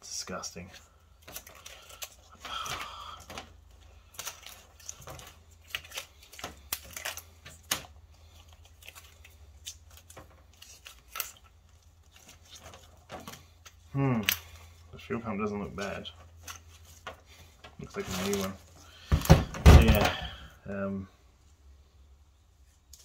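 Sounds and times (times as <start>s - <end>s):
tape being peeled off: 1.2s - 13.8s.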